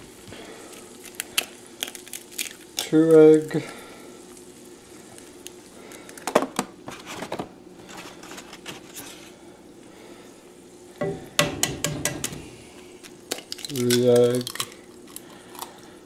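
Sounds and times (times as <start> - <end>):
food sizzling in a skillet: 0.0 - 5.9
eggs cracked against pan: 0.9 - 3.8, 11.0 - 15.8.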